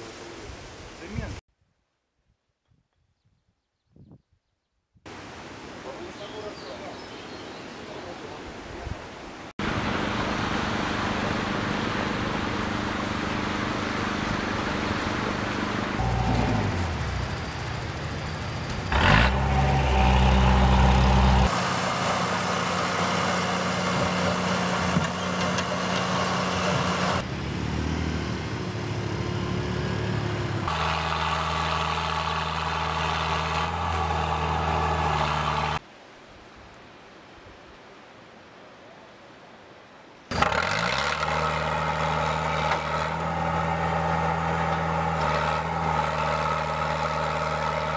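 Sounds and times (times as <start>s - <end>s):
diesel engines under load: 9.6s - 35.8s, 40.3s - 47.9s
engine revving: 9.6s - 35.8s, 40.3s - 47.9s.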